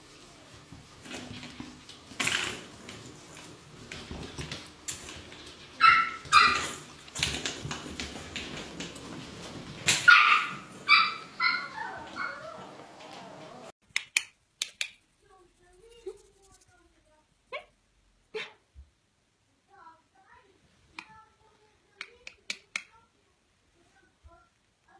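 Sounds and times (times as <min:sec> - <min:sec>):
puppy yipping: 0:05.8 - 0:06.8, 0:10.1 - 0:13.3.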